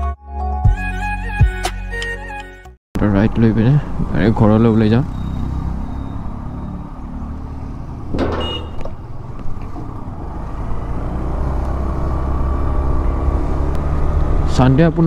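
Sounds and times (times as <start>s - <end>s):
road noise: 3.0s - 15.0s.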